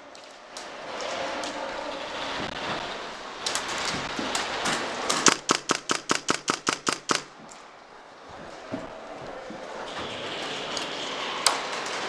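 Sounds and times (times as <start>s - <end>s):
airsoft gun shots: 5.1s - 7.3s.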